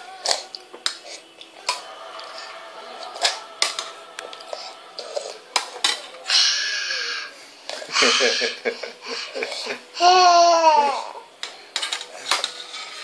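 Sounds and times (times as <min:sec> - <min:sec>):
spoons clinking on metal bowls: 0:03.1 - 0:06.2, 0:11.4 - 0:13.0.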